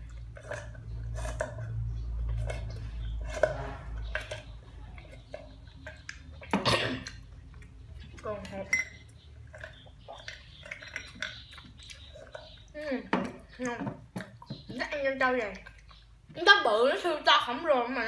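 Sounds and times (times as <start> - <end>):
sipping and slurping through straw: 0.0 - 7.2
chewing soft pearls: 0.0 - 16.5.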